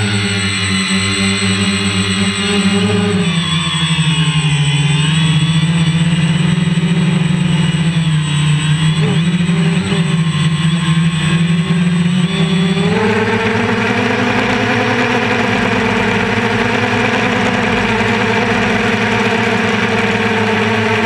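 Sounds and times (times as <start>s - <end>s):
drone motors buzzing: 0.0s - 21.0s.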